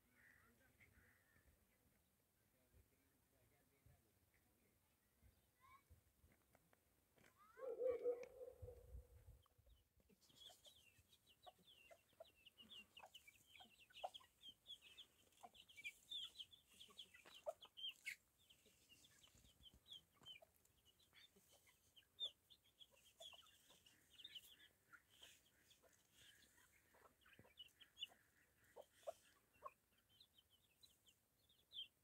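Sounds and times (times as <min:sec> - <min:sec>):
chickens clucking: 0:10.1 - 0:32.0.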